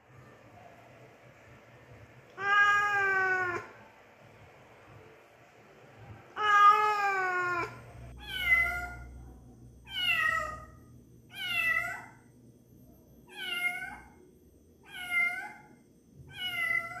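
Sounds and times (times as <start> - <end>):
cat meowing: 2.4 - 3.7, 6.4 - 9.1, 9.9 - 10.7, 11.3 - 12.2, 13.3 - 14.1, 14.8 - 15.7, 16.3 - 17.0.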